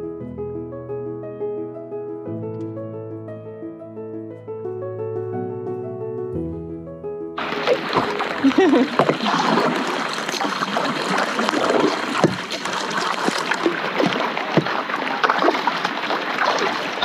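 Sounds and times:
light rain on water: 0:07.4 - 0:17.0
paddles splashing in water: 0:07.4 - 0:17.0.

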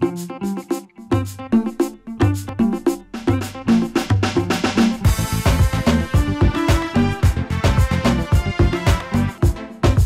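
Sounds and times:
upbeat instrumental music: 0:00.0 - 0:10.0.

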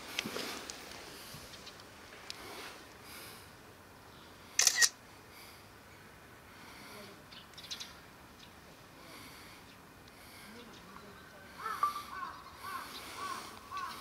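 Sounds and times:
camera shutter clicking: 0:04.6 - 0:05.0.

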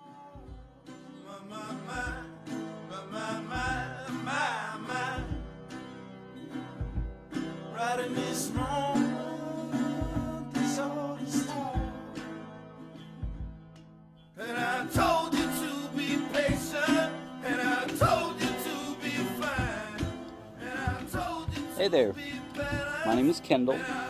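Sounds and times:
song with singing over guitar: 0:00.0 - 0:13.2, 0:14.4 - 0:24.0
low beat: 0:05.2 - 0:05.7, 0:06.7 - 0:07.4, 0:09.9 - 0:10.6, 0:11.7 - 0:12.2, 0:13.2 - 0:13.8, 0:19.4 - 0:23.5.

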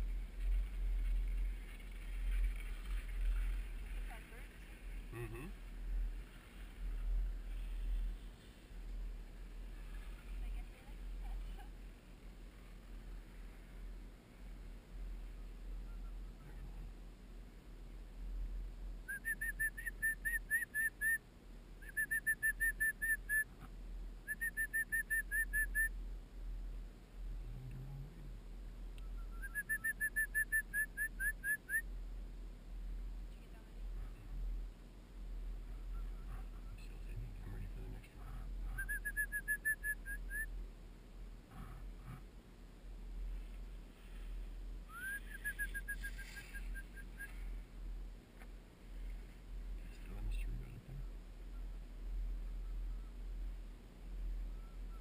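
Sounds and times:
short whistled notes: 0:44.9 - 0:47.3.

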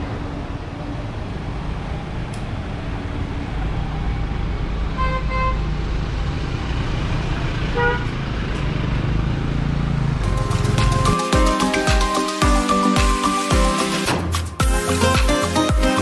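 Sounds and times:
car horn beeps: 0:05.0 - 0:05.6, 0:07.8 - 0:08.1.

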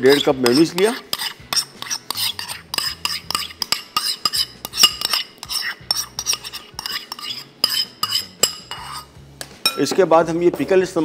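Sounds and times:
ceramic bowls clinking and scraping: 0:00.0 - 0:10.0.

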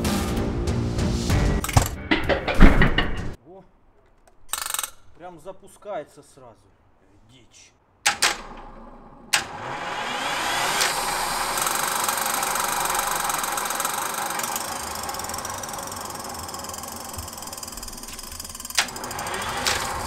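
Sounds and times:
starter click: 0:04.1 - 0:05.2, 0:08.0 - 0:09.8, 0:10.7 - 0:20.0
turbine engine whine: 0:08.4 - 0:20.0.

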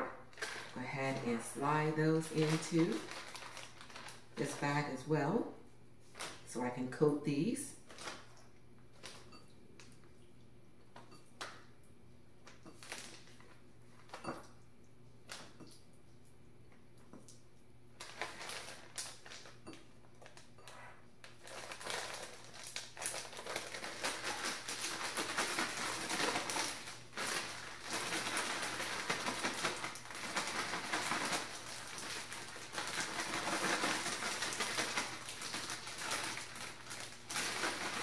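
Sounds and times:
plastic bag crinkling: 0:00.0 - 0:05.1, 0:06.0 - 0:06.5, 0:07.8 - 0:09.9, 0:12.5 - 0:14.4, 0:18.0 - 0:38.0.

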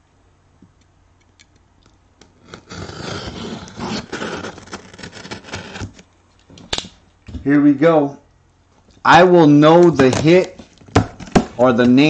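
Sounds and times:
box cutter slicing cardboard: 0:02.3 - 0:06.0.

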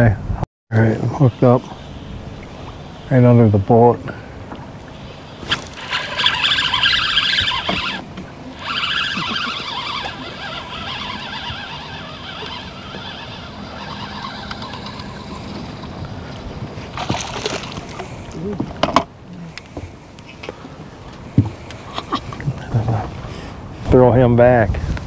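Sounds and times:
wind: 0:00.0 - 0:25.0
water lapping against boat hull: 0:04.0 - 0:23.3
fishing reel drag squealing: 0:05.0 - 0:16.0.

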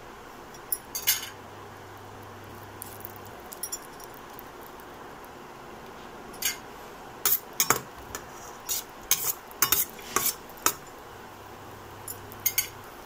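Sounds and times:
metal utensil scraping steel pan: 0:07.3 - 0:10.8.

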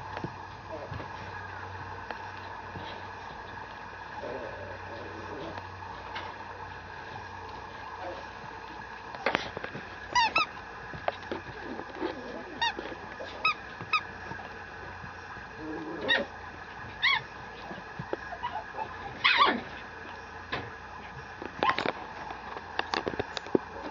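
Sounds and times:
puppy yipping and whining: 0:10.1 - 0:10.6, 0:17.0 - 0:17.3, 0:18.3 - 0:19.7.

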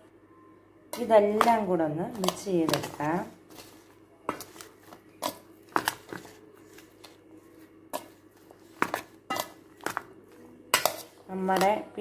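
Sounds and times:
metal spoon clinking against bowl: 0:08.9 - 0:10.1, 0:10.7 - 0:11.8.

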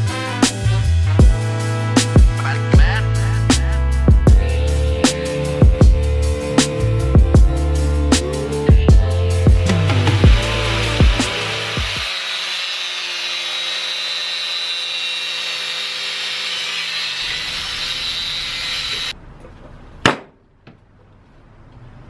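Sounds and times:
power tool running: 0:09.6 - 0:19.2.

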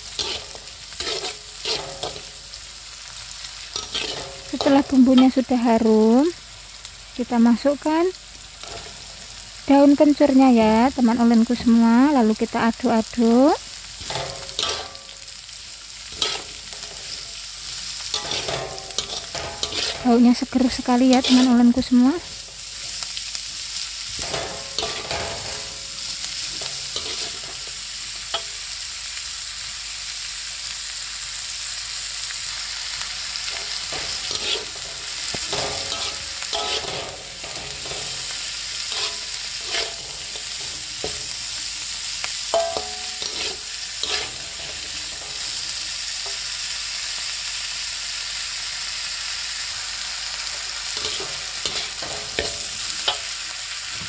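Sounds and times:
metal spatula scraping a pan: 0:00.0 - 0:02.5, 0:03.5 - 0:06.1, 0:08.6 - 0:09.2, 0:14.0 - 0:15.4, 0:16.0 - 0:23.2, 0:24.0 - 0:28.6, 0:33.4 - 0:41.7, 0:42.5 - 0:46.4, 0:50.9 - 0:53.4
food sizzling in a wok: 0:00.0 - 0:54.0.

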